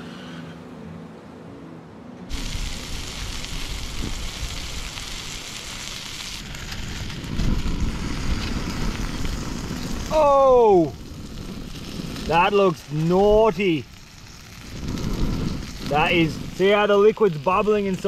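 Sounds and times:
background music: 0.0s - 3.1s
food sizzling in a frying pan: 2.3s - 18.0s
wind rumbling on the microphone: 2.3s - 18.0s.

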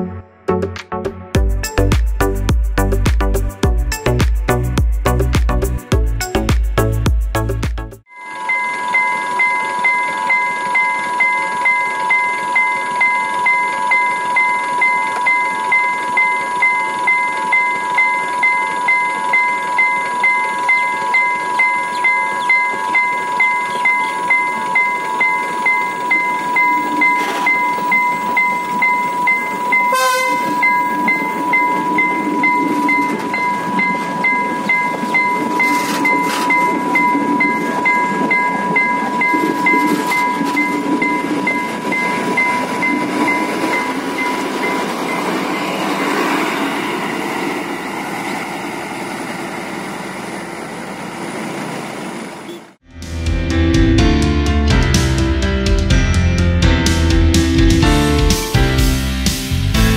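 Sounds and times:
train engine and wheels rumbling: 1.4s - 59.9s
level-crossing alarm: 8.1s - 47.2s
short sharp horn blast: 29.9s - 30.7s.

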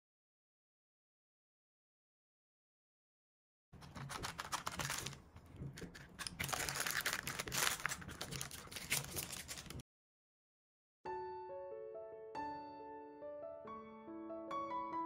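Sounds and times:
crinkling and crackling: 3.8s - 9.8s.

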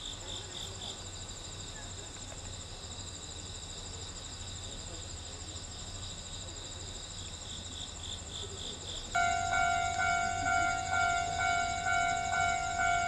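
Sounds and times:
crickets chirring: 0.0s - 13.0s
faint low hum: 8.4s - 13.0s.

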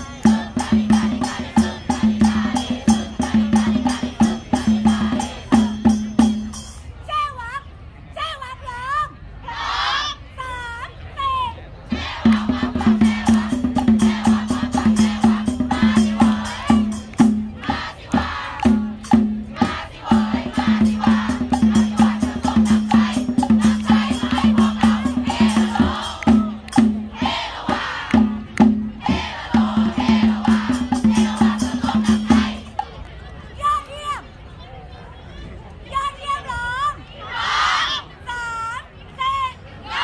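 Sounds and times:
voices singing along: 0.0s - 6.4s, 11.9s - 32.9s
shaker-like rattles: 12.1s - 33.3s.

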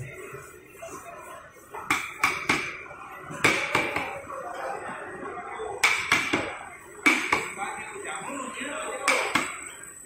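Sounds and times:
baton striking chopping blade: 1.9s - 2.8s, 5.8s - 7.5s.

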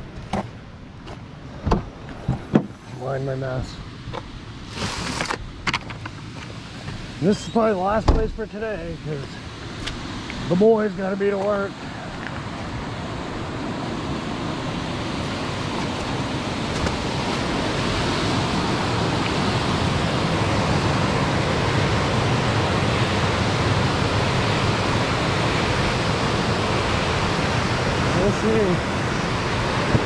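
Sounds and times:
water rushing through spillway: 6.6s - 30.0s.

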